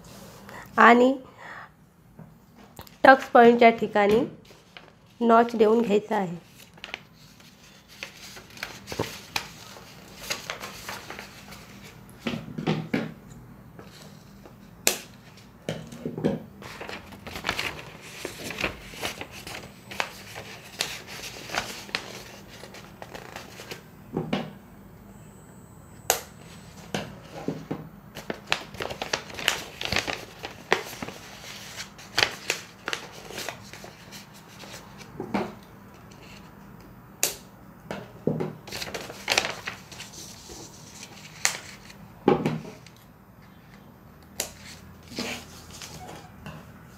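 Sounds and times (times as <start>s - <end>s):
paper rustling and crinkling: 4.4s - 5.3s, 6.4s - 12.0s, 16.6s - 23.8s, 27.2s - 35.1s, 38.6s - 42.0s, 44.4s - 46.3s.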